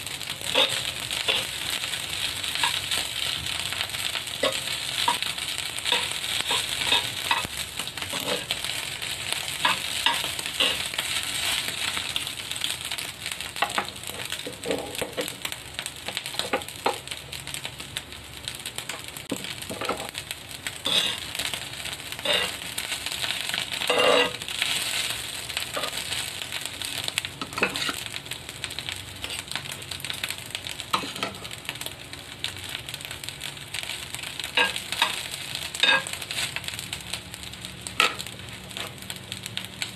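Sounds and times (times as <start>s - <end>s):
rice sizzling in a pan: 0.0s - 39.9s
metal utensils scraping a pan: 0.4s - 3.3s, 4.4s - 8.8s, 9.5s - 11.9s, 20.8s - 21.4s, 22.2s - 22.6s, 23.3s - 25.1s, 25.7s - 26.2s, 27.4s - 28.0s, 30.9s - 31.4s, 34.6s - 35.2s, 35.8s - 36.4s.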